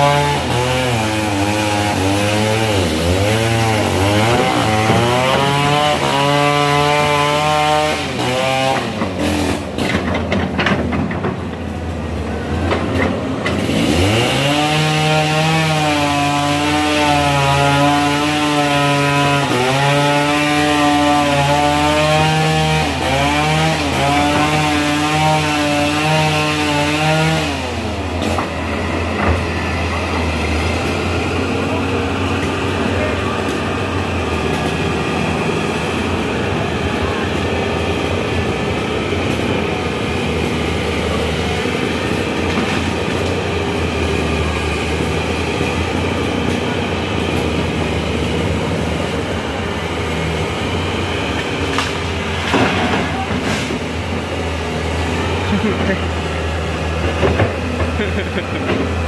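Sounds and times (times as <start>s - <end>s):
excavator diesel engine under load: 0.0s - 59.0s
rattling and clanking: 8.8s - 12.0s.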